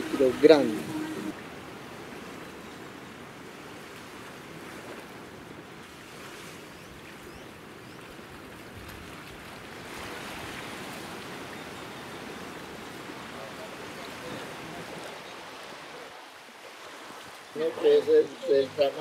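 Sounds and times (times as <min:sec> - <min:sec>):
sea waves washing on shore: 0:00.0 - 0:19.0.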